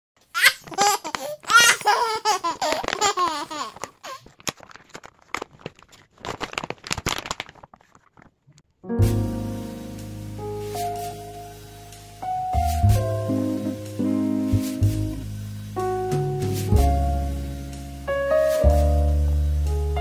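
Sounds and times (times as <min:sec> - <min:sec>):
paper box crinkling: 0:00.3 - 0:08.8
plastic bag rustling: 0:00.3 - 0:09.3
person giggling: 0:00.4 - 0:04.2.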